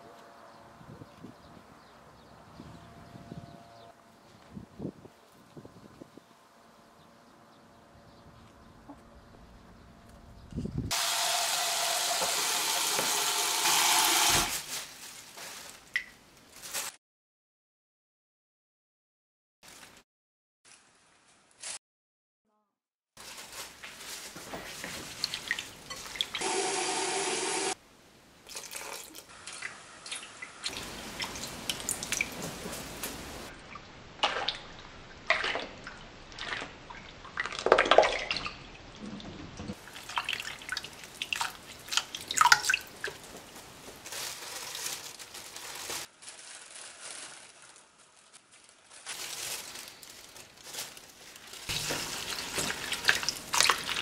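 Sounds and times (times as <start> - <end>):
water dripping: 25.2 - 26.4, 28.4 - 43.4, 51.7 - 54.0
hand swishing flowers in water: 39.8 - 54.0
tap water splashing into a bowl: 40.0 - 43.2.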